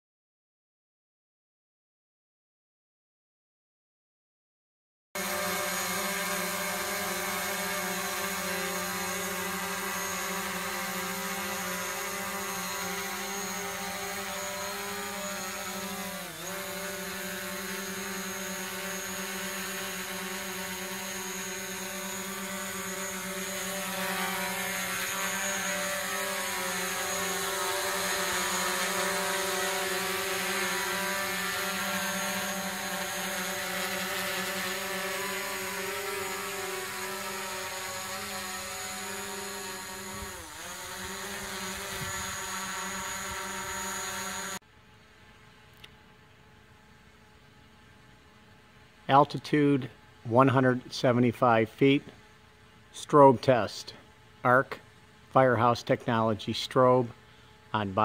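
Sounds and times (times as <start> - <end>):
drone propellers buzzing: 5.2 - 44.6.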